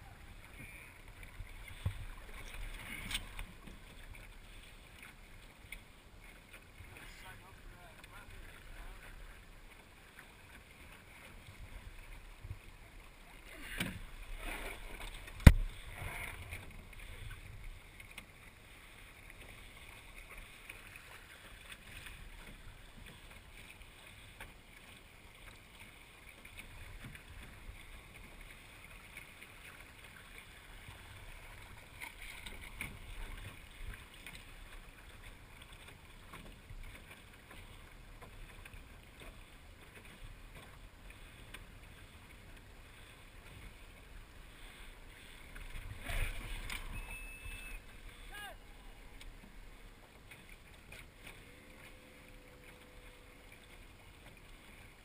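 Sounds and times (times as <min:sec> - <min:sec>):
water lapping against a hull: 0:00.0 - 0:55.0.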